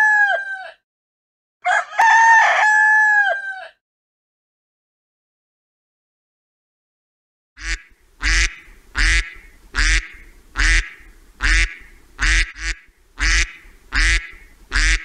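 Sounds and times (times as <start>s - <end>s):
duck quacking: 7.6s - 15.0s.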